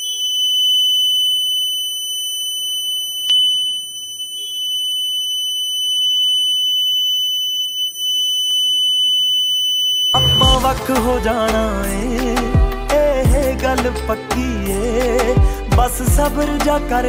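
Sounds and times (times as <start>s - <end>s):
high-pitched alarm buzzer: 0.0s - 10.8s.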